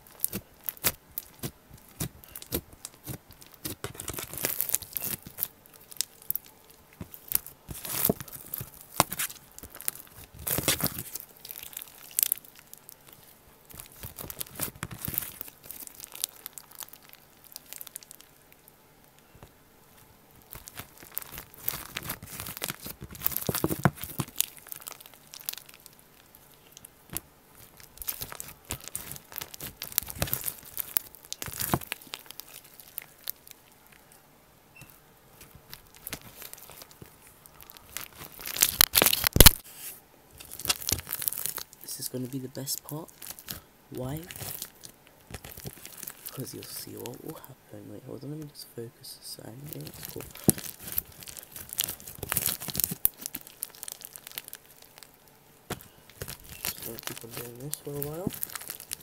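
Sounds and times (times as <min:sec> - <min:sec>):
slime squished by hand: 0:00.0 - 0:19.3, 0:20.3 - 0:34.1, 0:34.8 - 0:39.8, 0:40.4 - 0:41.8, 0:42.8 - 0:47.1, 0:49.6 - 0:59.0.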